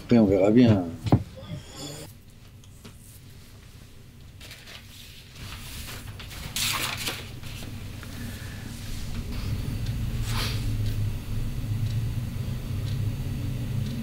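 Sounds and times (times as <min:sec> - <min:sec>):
paper rustling and sliding: 0:04.4 - 0:07.8.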